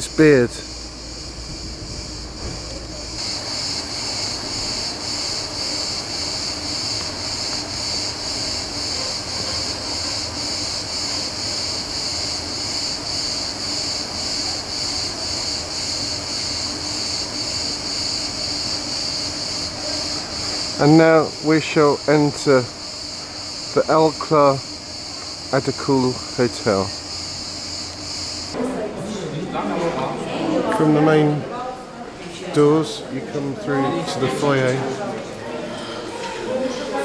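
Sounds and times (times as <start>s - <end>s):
cicadas buzzing: 0.0s - 28.7s.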